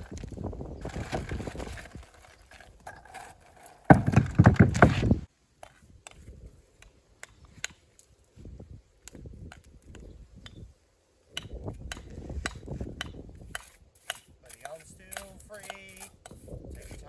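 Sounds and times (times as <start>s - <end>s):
stones scraping and clattering: 0.0s - 5.3s.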